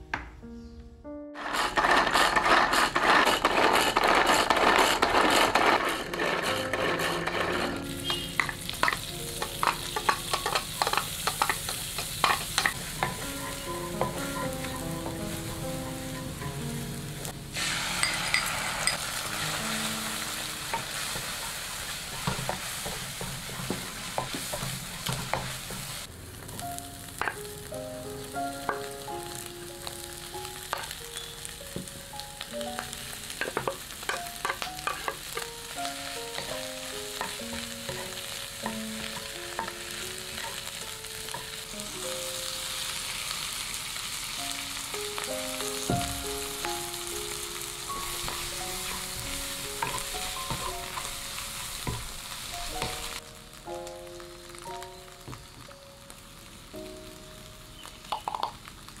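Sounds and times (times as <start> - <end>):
wooden spatula scraping a pan: 1.4 - 16.6, 17.6 - 26.6, 33.4 - 41.6, 47.3 - 53.2
food sizzling in hot oil: 1.4 - 59.0.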